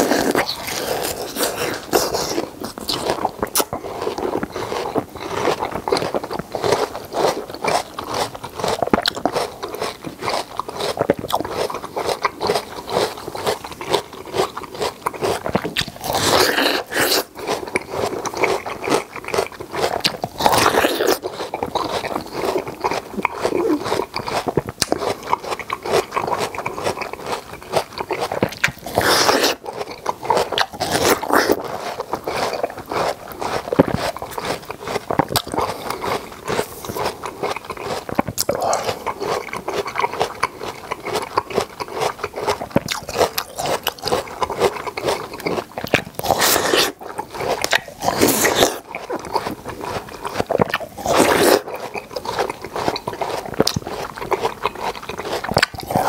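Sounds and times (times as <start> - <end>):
wet crunchy watermelon bites: 0.0 - 56.0.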